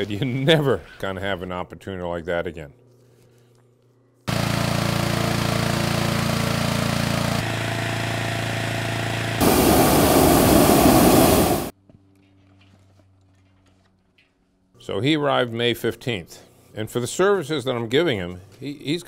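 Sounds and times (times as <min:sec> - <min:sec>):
sewing machine running fast: 0:04.3 - 0:09.6
engine-driven machine: 0:04.3 - 0:11.7
propane burner roaring: 0:04.3 - 0:11.7.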